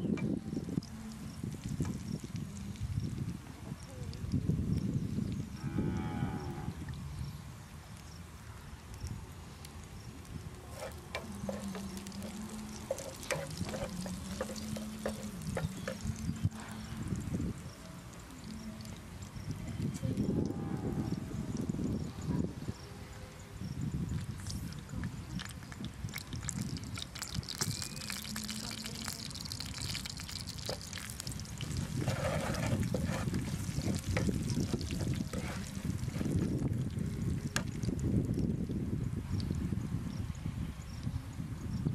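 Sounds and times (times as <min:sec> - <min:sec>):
garlic frying: 0:00.0 - 0:05.6, 0:07.1 - 0:20.3, 0:24.1 - 0:38.6
spatula scraping frying pan: 0:10.7 - 0:16.2, 0:30.3 - 0:36.5.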